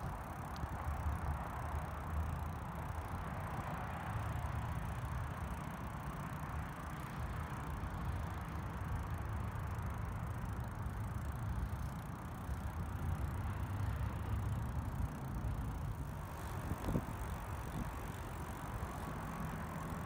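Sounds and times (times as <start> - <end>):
bicycle tyres rolling on concrete: 0.0 - 20.0
wind noise on microphone: 16.0 - 19.2.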